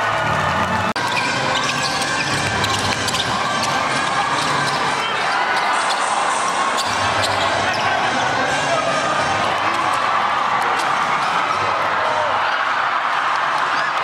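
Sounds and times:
crowd noise: 0:00.0 - 0:14.0
basketball bouncing: 0:01.0 - 0:06.0.

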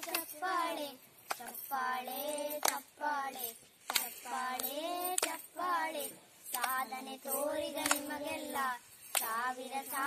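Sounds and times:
hands clapping: 0:00.0 - 0:00.4, 0:01.2 - 0:01.7, 0:02.3 - 0:05.5, 0:06.4 - 0:06.9, 0:07.8 - 0:08.2, 0:09.0 - 0:10.0
children singing: 0:04.2 - 0:10.0.

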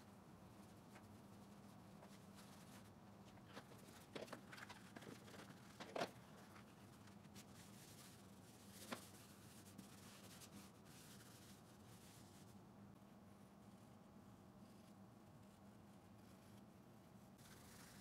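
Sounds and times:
paper towel rubbing plastic: 0:17.4 - 0:18.0.

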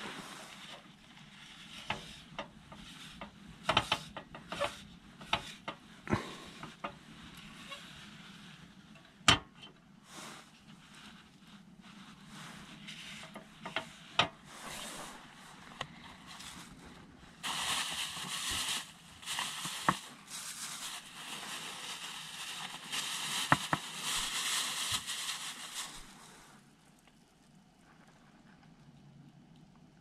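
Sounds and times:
paper towel crumpling: 0:10.2 - 0:26.4.

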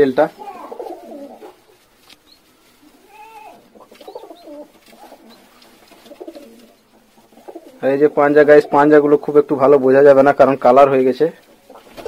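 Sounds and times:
pigeons cooing softly: 0:00.0 - 0:09.4.

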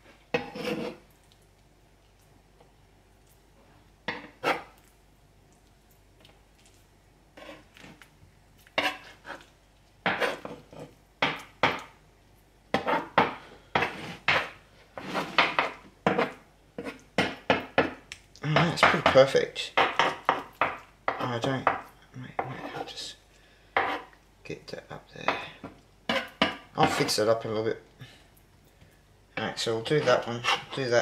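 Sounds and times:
metal spatula scraping wooden board: 0:00.3 - 0:01.0, 0:04.1 - 0:04.7, 0:07.4 - 0:07.8, 0:08.8 - 0:09.4, 0:10.1 - 0:10.9, 0:12.8 - 0:13.2, 0:13.8 - 0:17.0, 0:22.4 - 0:23.1, 0:23.8 - 0:24.1, 0:26.1 - 0:27.2, 0:29.4 - 0:31.0.

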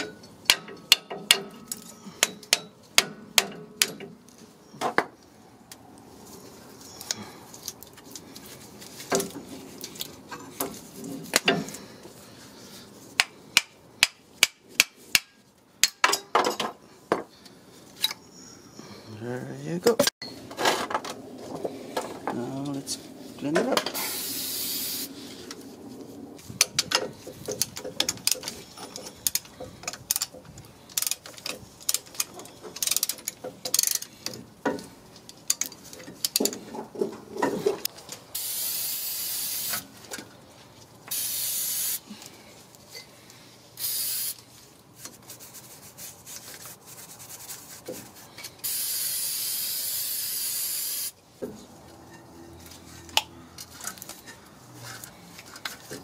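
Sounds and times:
aerosol spray hissing: 0:24.0 - 0:25.1, 0:38.4 - 0:39.8, 0:41.1 - 0:42.0, 0:43.8 - 0:44.4, 0:48.6 - 0:51.1.

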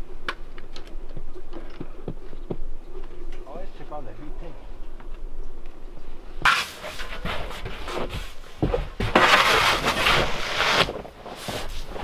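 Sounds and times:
snow shovel scraping wooden boards: 0:06.4 - 0:12.0.

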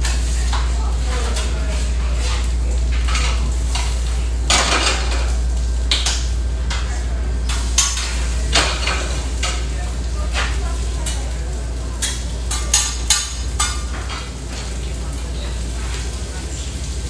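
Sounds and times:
metal utensils scraping griddle: 0:00.0 - 0:05.3
food sizzling on griddle: 0:00.0 - 0:17.0
steady low hum: 0:00.0 - 0:17.0.

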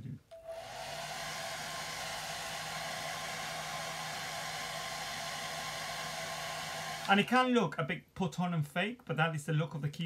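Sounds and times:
hairdryer running: 0:00.3 - 0:07.3.

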